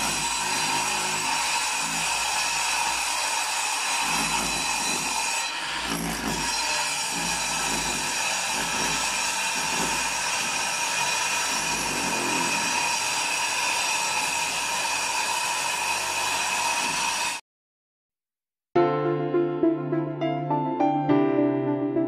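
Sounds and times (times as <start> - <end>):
power drill boring into concrete: 0.0 - 17.4.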